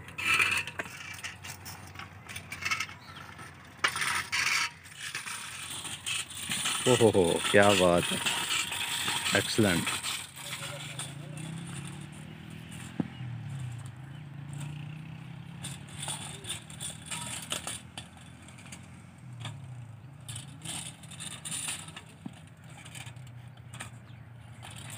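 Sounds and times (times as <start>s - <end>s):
clicks and scrapes: 0.0s - 14.8s, 15.6s - 24.9s
stone wheel rolling over dirt: 0.0s - 24.9s.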